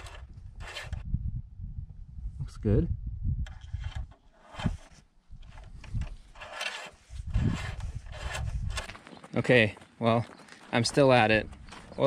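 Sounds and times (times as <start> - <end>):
wind rumble on microphone: 0.0 - 6.4, 7.0 - 9.0.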